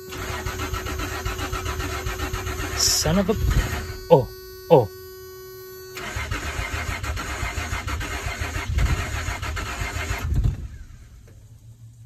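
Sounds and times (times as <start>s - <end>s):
truck engine cranking: 0.0s - 4.2s, 6.0s - 10.8s.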